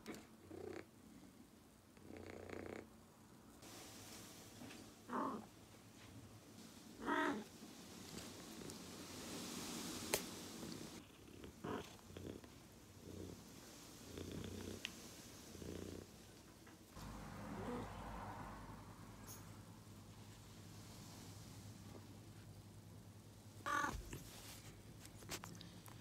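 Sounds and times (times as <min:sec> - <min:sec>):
cat purring: 0:00.0 - 0:00.9, 0:02.0 - 0:03.0, 0:07.0 - 0:16.4.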